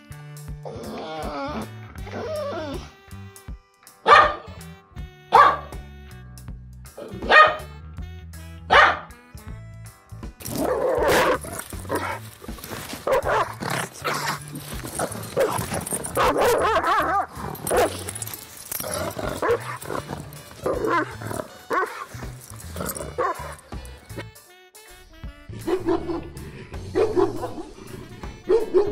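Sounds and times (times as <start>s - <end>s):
background music: 0.0s - 28.9s
dog barking: 4.0s - 4.6s, 5.3s - 5.8s, 7.0s - 7.8s, 8.7s - 9.2s, 10.5s - 18.1s, 18.8s - 23.9s, 25.6s - 28.9s.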